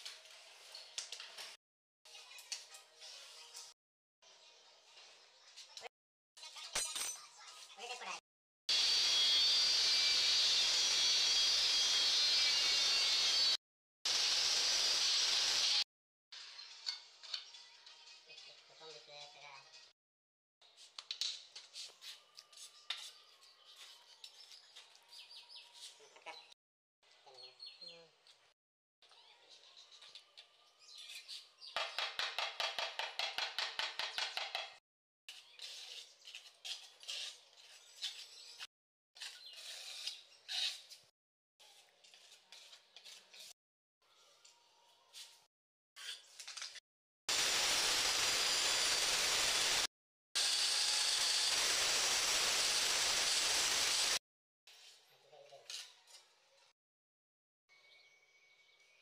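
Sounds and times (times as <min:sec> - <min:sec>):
tile cutter grinding: 0:08.7 - 0:15.8, 0:46.0 - 0:54.2
trowel scraping mortar: 0:35.3 - 0:43.6.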